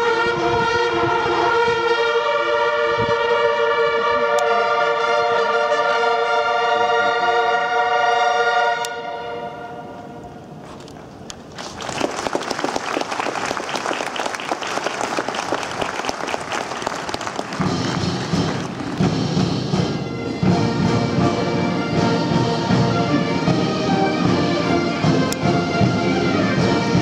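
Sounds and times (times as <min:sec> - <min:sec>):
bagpipe and bugle playing: 0:00.0 - 0:10.2, 0:17.6 - 0:27.0
crowd applauding: 0:11.5 - 0:19.4.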